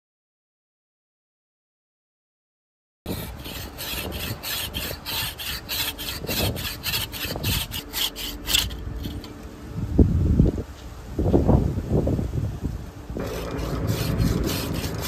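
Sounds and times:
pruning saw cutting tree limb: 3.1 - 9.4, 13.2 - 15.0
low bumps: 13.2 - 15.0.

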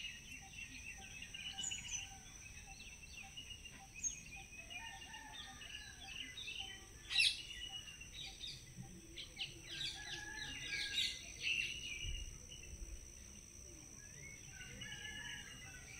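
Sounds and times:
birds chirping and trilling: 0.0 - 12.6.

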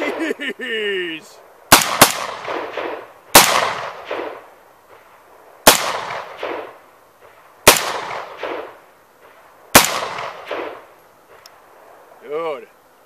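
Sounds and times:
gunshot echo: 1.7 - 5.0, 5.6 - 10.9
gunshots: 1.7 - 5.0, 5.6 - 10.9.

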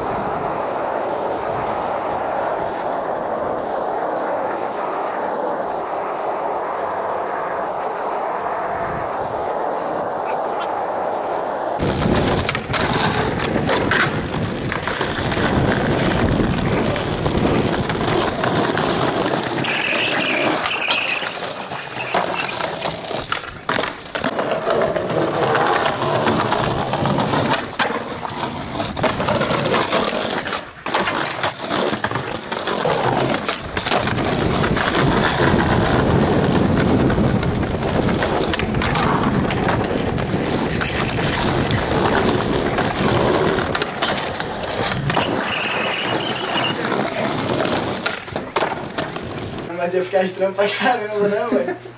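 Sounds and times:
skateboard grinding on ledge: 0.0 - 49.7
skateboard wheels rolling on concrete: 0.0 - 51.9
skateboard pops and landings: 11.8 - 49.7.

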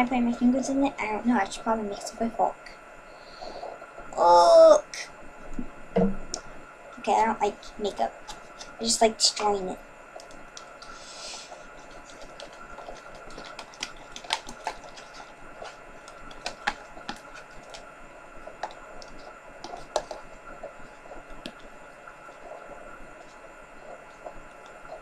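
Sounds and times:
faint steady hum: 0.0 - 25.0
spoon scraping plastic container: 11.8 - 17.8.

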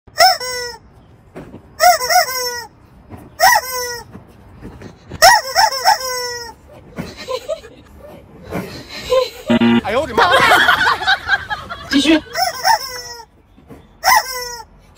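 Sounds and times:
rubber chicken toy squawking: 0.1 - 0.8, 1.8 - 2.7, 5.2 - 6.7, 12.3 - 13.3, 14.0 - 14.7.

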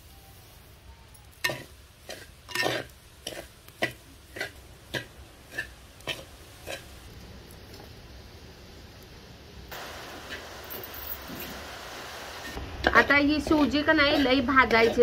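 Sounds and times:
metal spatula scraping clay pan: 1.4 - 6.9, 14.0 - 15.0.

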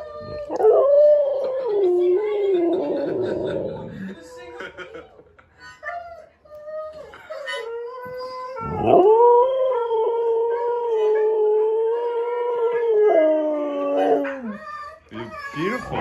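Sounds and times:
dog howling: 0.0 - 4.1, 8.1 - 14.6, 15.5 - 16.0.

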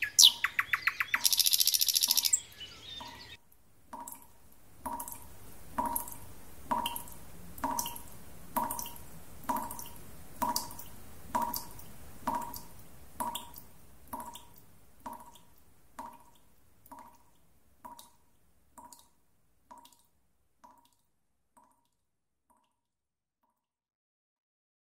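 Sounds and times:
ringing drip-like clicks: 1.2 - 2.4.

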